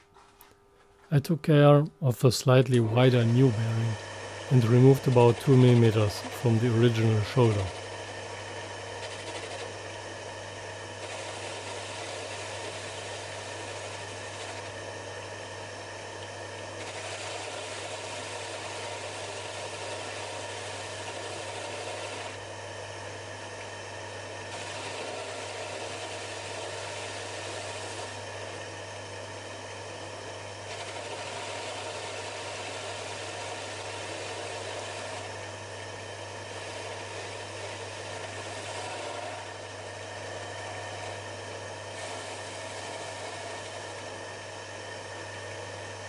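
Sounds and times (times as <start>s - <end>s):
metal lathe motor hum: 2.7s - 46.0s
lathe tool cutting hiss: 16.8s - 22.4s, 24.5s - 28.2s, 30.7s - 35.4s, 36.5s - 39.6s.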